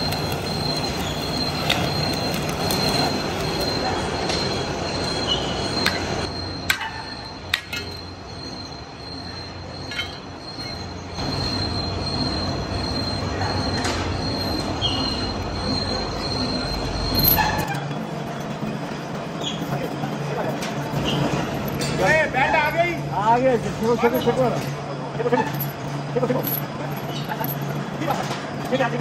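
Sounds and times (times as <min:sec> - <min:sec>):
metal-cutting machine whining: 0:00.0 - 0:17.2.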